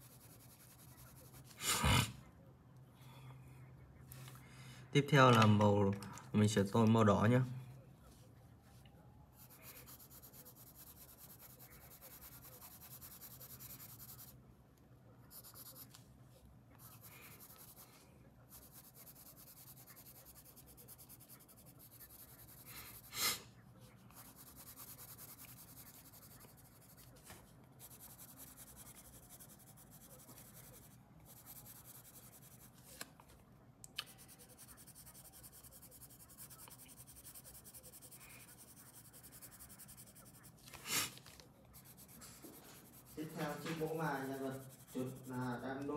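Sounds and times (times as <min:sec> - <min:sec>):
pencil scratching on paper: 0:00.0 - 0:01.6, 0:09.4 - 0:14.4, 0:15.2 - 0:16.0, 0:16.8 - 0:23.2, 0:23.8 - 0:33.0, 0:34.1 - 0:45.9.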